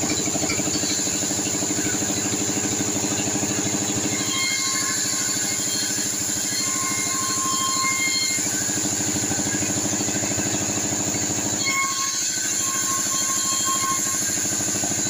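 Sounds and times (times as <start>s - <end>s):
band sawmill drone: 0.0s - 15.0s
high saw whine: 0.0s - 15.0s.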